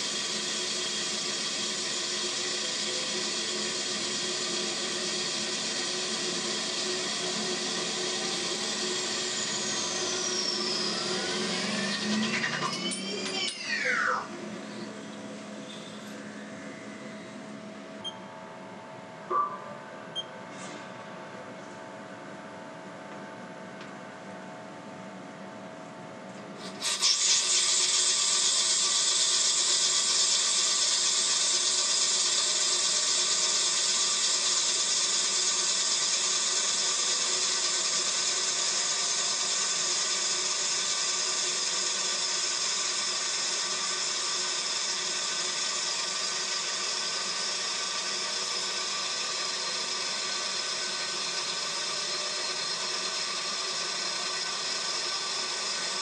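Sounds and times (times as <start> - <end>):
power tool motor whining: 0.0 - 16.1, 26.6 - 56.0.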